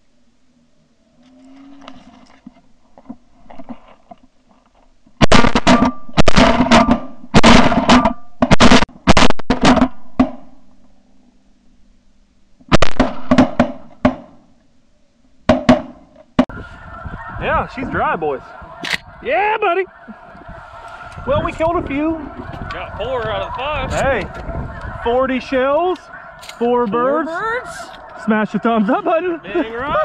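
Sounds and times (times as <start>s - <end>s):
shotgun blasts: 5.2s - 10.5s, 12.7s - 14.3s.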